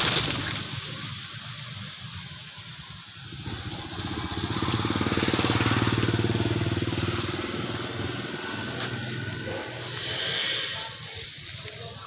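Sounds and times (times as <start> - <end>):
small motorbike engine: 2.9 - 11.6.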